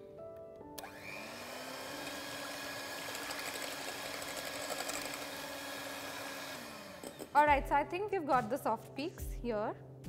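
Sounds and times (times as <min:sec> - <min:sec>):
electric hand mixer running: 0:00.8 - 0:07.4.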